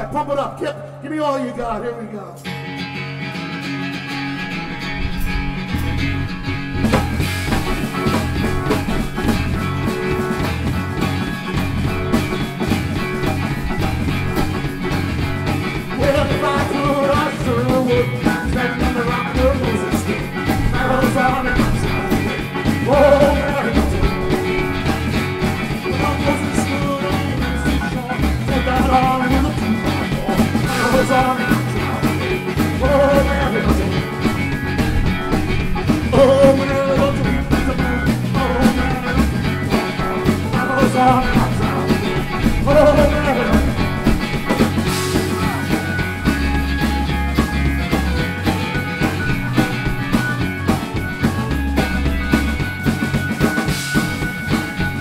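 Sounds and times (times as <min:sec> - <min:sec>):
electric organ: 0:02.3 - 0:55.0
strummed acoustic guitar: 0:02.4 - 0:55.0
drums and cymbals: 0:04.1 - 0:55.0
man singing: 0:15.8 - 0:35.1, 0:35.9 - 0:46.6.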